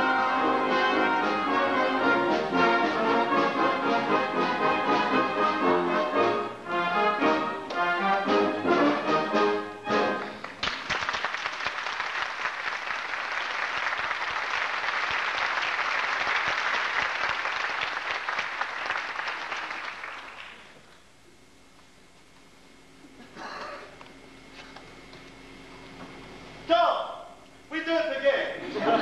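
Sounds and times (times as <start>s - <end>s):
orchestra music: 0.0s - 10.5s
audience applause: 10.2s - 20.8s.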